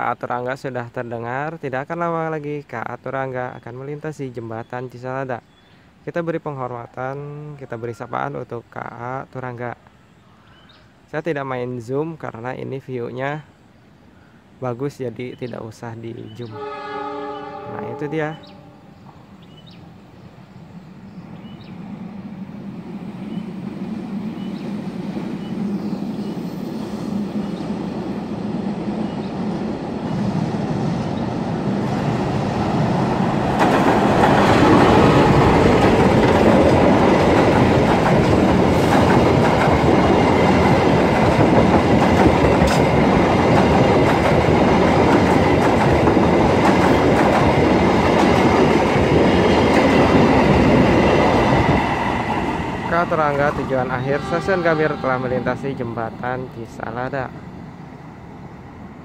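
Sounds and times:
locomotive engine hum: 0:16.5 - 0:59.0
train wheels clacking on rails: 0:32.8 - 0:53.6.

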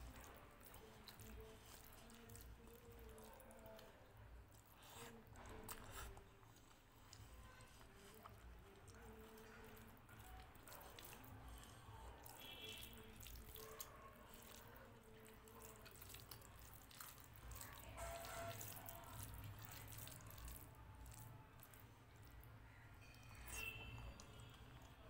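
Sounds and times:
fingers squelching rice: 0:00.0 - 0:22.4.

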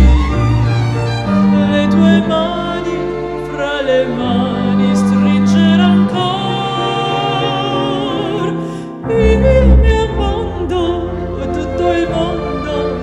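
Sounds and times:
deep low note: 0:00.0 - 0:01.5, 0:09.2 - 0:10.7
small classical orchestra: 0:00.0 - 0:13.0
soprano singing with vibrato: 0:01.4 - 0:13.0.

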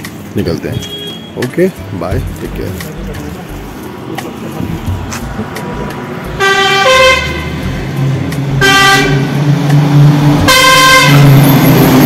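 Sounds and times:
truck engine: 0:00.0 - 0:12.0
truck horn blasts: 0:00.7 - 0:01.4, 0:06.4 - 0:07.7, 0:08.6 - 0:09.3, 0:10.4 - 0:11.4.

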